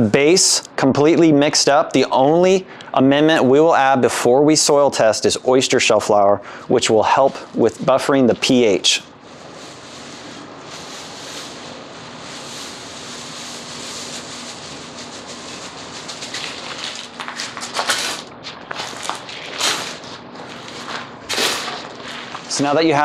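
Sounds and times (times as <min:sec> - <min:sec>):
powder pouring with soft hiss: 0:07.1 - 0:17.1
shovel scraping gritty soil: 0:17.7 - 0:22.6.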